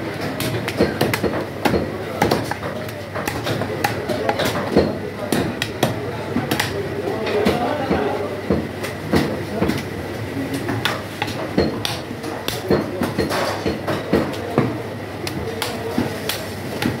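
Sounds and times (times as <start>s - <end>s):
cleaver chopping on wooden block: 0.4s - 6.7s.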